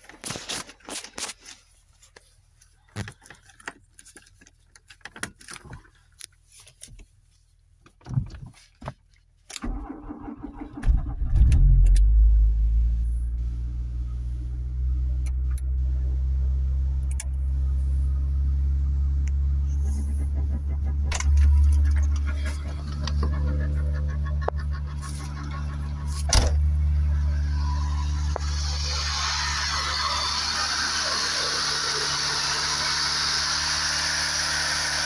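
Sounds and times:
car engine cranking and starting: 9.5s - 35.0s
car engine idling: 9.8s - 34.6s.

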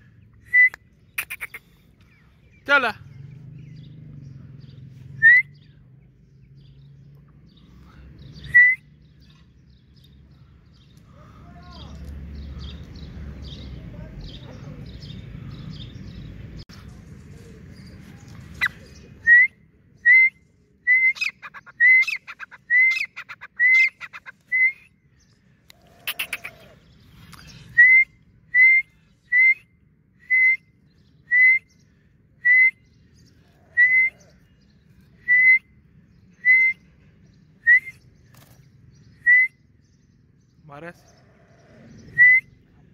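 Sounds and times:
francolins whistled calls: 5.0s - 5.8s, 8.2s - 9.4s, 18.6s - 25.3s, 27.7s - 34.4s, 35.2s - 36.9s, 37.5s - 38.3s, 41.9s - 42.7s.

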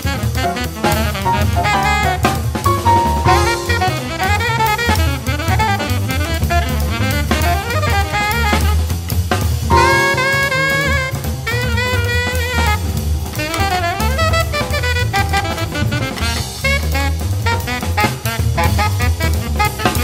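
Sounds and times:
bass line: 0.0s - 4.7s, 9.7s - 12.1s
drum kit beat: 0.0s - 4.7s, 9.7s - 11.8s
saxophone-like horn melody: 0.0s - 6.0s, 9.7s - 12.8s
swing jazz music: 0.0s - 20.0s.

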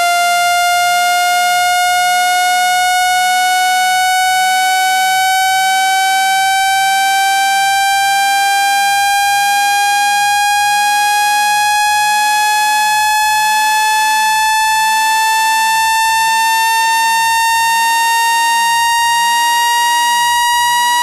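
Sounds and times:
buzzy electronic tone rising in pitch: 0.0s - 21.0s.

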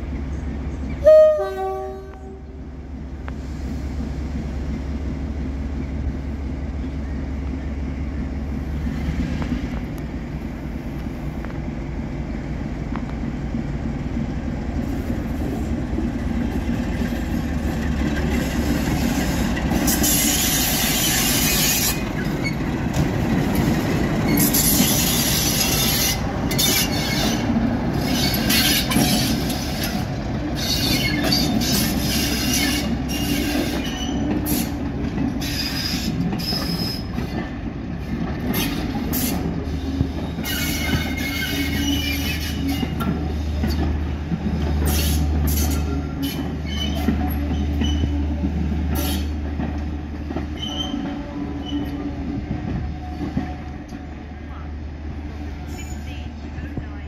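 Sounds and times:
diesel locomotive engine running: 0.0s - 57.0s
wheels squealing on rails: 16.6s - 54.6s, 55.3s - 56.7s.

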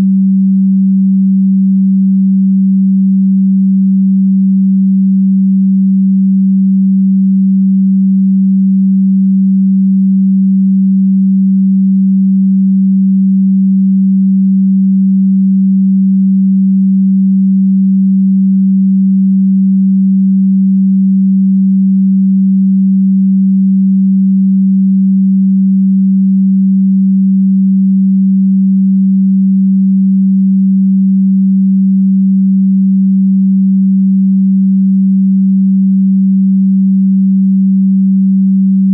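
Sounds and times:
low steady sine tone: 0.0s - 38.9s.

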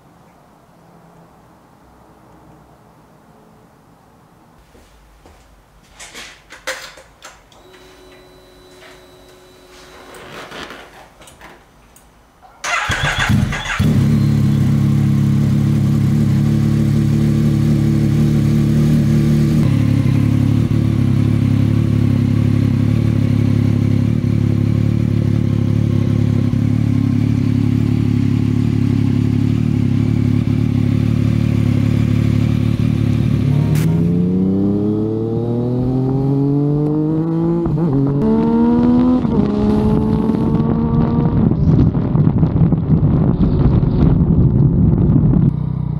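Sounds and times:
motorcycle engine starting: 12.6s - 43.6s, 45.1s - 45.9s
motorcycle engine idling: 12.7s - 33.7s
motorcycle accelerating through gears: 12.7s - 45.9s.

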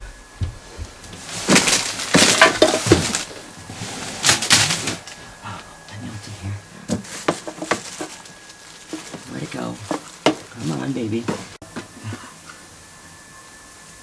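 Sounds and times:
rummaging through clutter: 0.4s - 12.3s.

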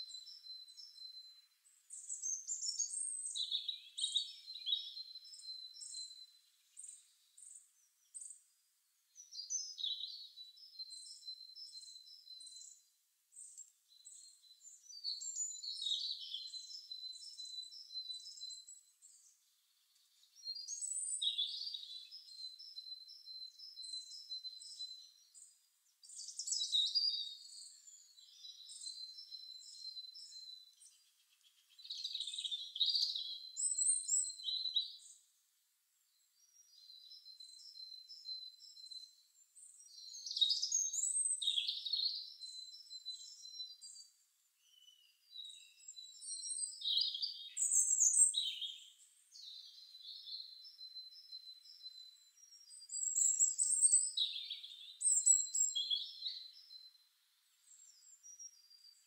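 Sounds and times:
quiet bird chirping: 0.0s - 59.0s
bird chirps and trills: 44.6s - 56.8s.

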